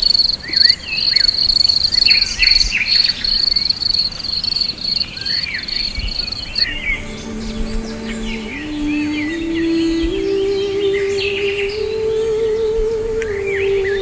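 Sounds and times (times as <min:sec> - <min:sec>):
cicadas buzzing: 0:00.0 - 0:14.0
soft low music notes: 0:06.6 - 0:14.0.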